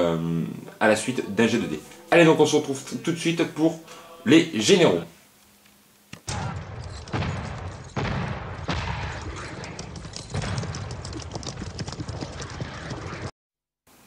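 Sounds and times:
continuous rumbling din: 6.3 - 13.3
loud gunshots or booms: 6.3 - 13.3.

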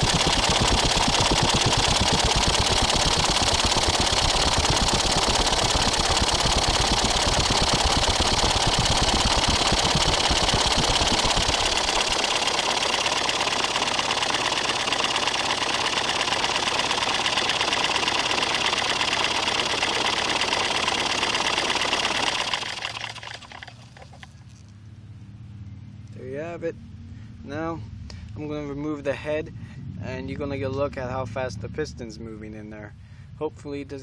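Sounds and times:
engine valve clatter: 0.0 - 24.4.

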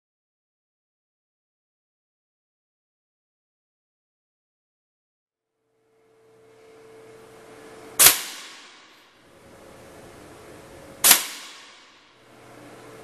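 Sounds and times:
faint steady hum: 5.5 - 13.0
air rifle shots: 8.0 - 9.0, 11.0 - 12.1.

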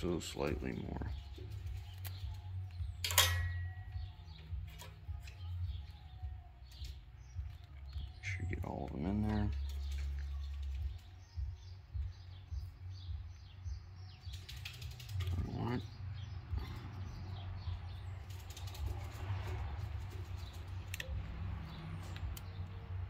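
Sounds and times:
birds chirping: 0.0 - 23.0
wire crimper clicking and creaking: 1.4 - 8.2, 20.3 - 22.8.

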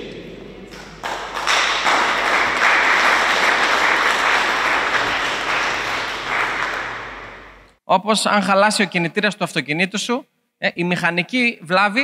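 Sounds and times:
people clapping: 0.7 - 7.8.

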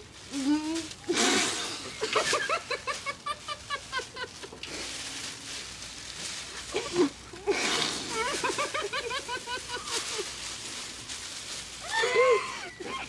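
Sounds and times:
muffled laughter: 1.1 - 4.6, 6.7 - 10.3, 11.9 - 13.0.

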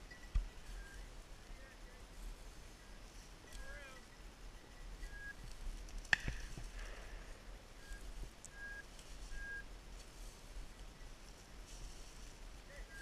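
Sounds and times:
walking through dry grass: 0.0 - 13.0
high-pitched tones: 3.4 - 5.5, 7.7 - 9.8.

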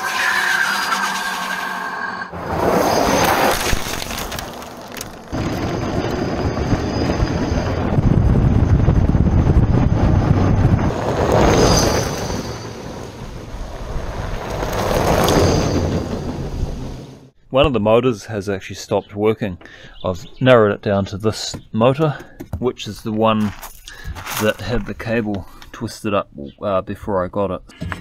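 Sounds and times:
tyres on gravel: 2.4 - 7.1, 20.8 - 25.9
wind rushing over microphone: 5.3 - 17.2.

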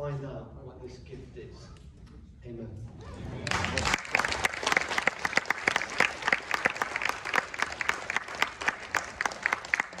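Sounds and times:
crowd clapping: 3.4 - 10.0.

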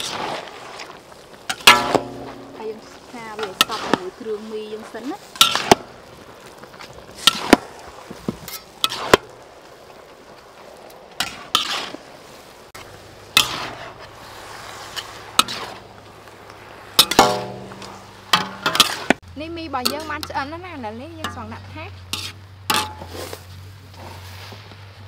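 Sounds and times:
metal utensils clanking on wok: 1.5 - 6.0, 11.2 - 12.0, 13.3 - 14.1, 14.9 - 15.8, 17.0 - 19.2, 19.8 - 23.3.

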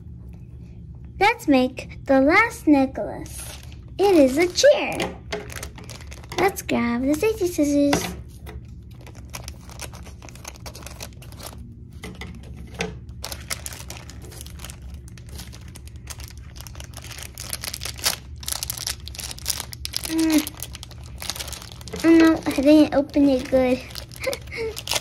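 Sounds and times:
plastic packet crinkling: 3.2 - 7.9, 8.7 - 25.0
scissors cutting plastic: 9.0 - 25.0.

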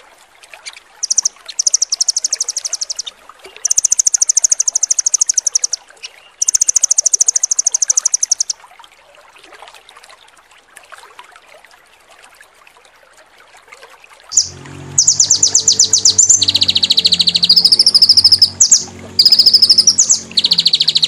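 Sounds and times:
faint running water: 0.0 - 21.0
songbird trill: 1.0 - 8.5, 14.3 - 21.0.

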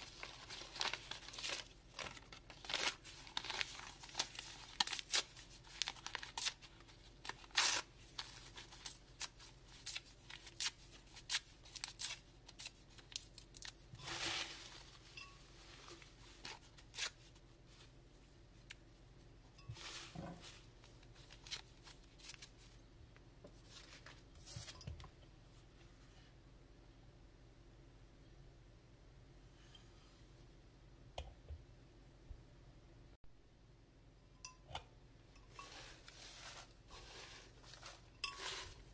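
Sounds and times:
paper tearing and crinkling: 0.0 - 14.9.

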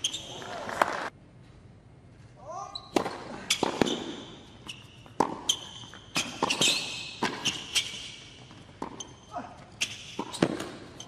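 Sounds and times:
shoes squeaking on court: 0.0 - 0.6, 2.7 - 11.0
racket striking tennis ball: 2.9 - 9.2, 9.8 - 11.0
tennis ball bouncing: 2.9 - 9.2, 9.8 - 11.0.

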